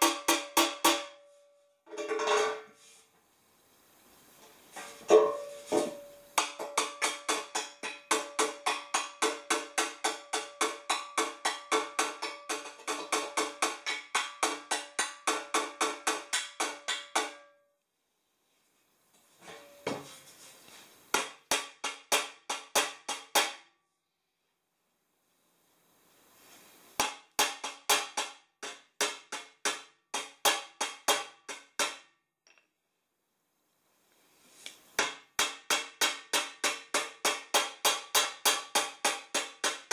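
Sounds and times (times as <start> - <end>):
hammer ringing on metal pipe: 0.0 - 1.4
hammer striking metal pipe: 0.0 - 2.2, 5.0 - 17.7, 21.1 - 23.7, 27.0 - 32.2, 35.0 - 39.9.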